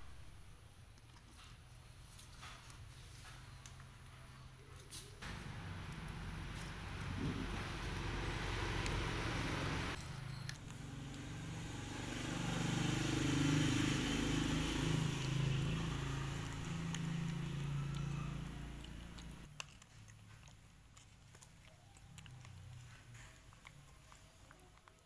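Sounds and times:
motor engine humming: 5.2s - 19.5s.

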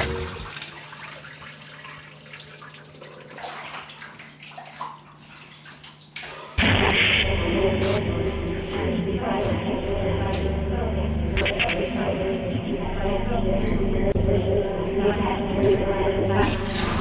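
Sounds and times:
shower water splashing: 0.0s - 6.6s.

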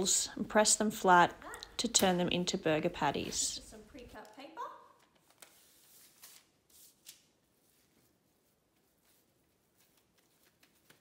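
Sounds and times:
paper sheets rustling: 5.0s - 11.0s.

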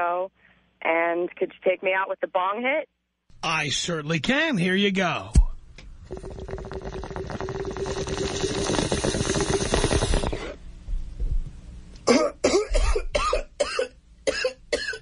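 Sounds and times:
water bubbling through bong: 5.4s - 10.6s
person coughing: 12.0s - 15.0s.

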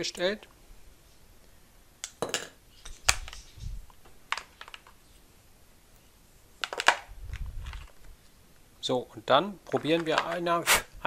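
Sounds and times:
plastic parts clicking: 2.0s - 5.0s, 6.6s - 8.2s, 9.6s - 10.5s.

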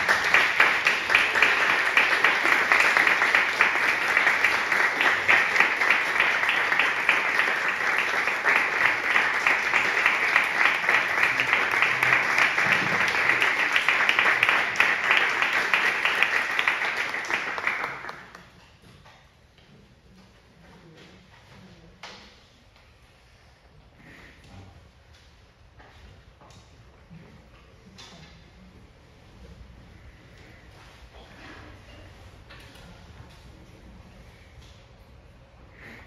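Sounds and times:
audience applauding: 0.0s - 18.5s.

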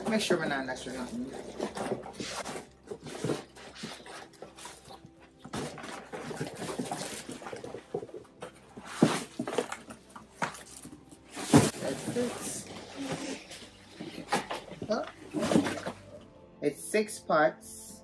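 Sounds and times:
plastic bags rustling: 0.0s - 16.2s.

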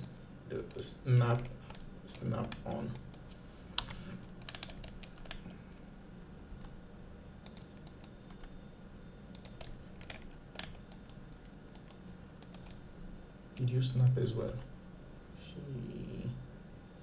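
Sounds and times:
keyboard and mouse clicking: 0.0s - 5.6s, 7.4s - 8.5s, 9.3s - 12.8s
low steady hum: 0.0s - 17.0s.

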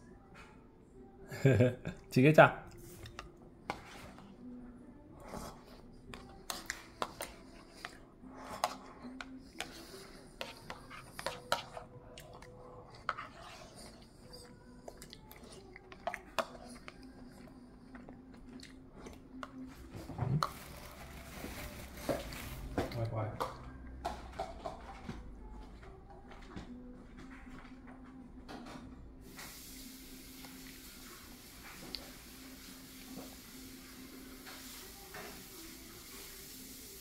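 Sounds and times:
toddler chewing bread: 10.5s - 19.7s.

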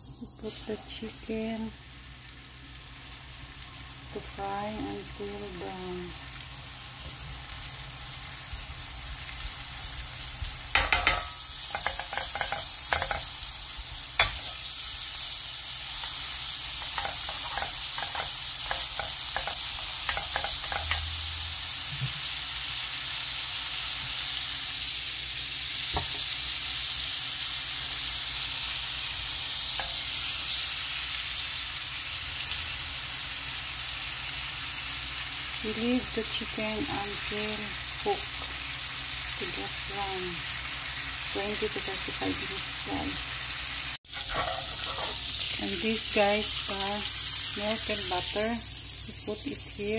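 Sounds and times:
chicken sizzling in a pan: 0.0s - 49.9s
light taps in the pan: 25.9s - 26.3s.

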